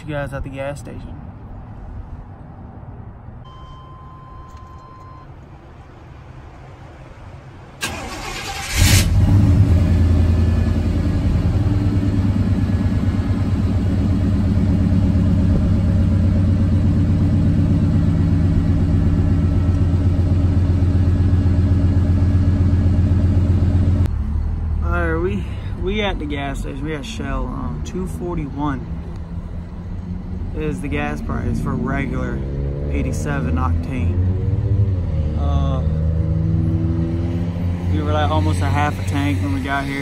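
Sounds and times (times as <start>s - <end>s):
car chime tone: 3.4s - 5.4s
car engine idling: 7.8s - 32.3s.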